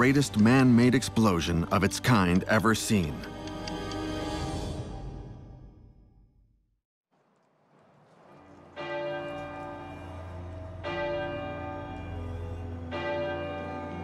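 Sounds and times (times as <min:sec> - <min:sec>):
church bell tolling: 0:08.4 - 0:14.0.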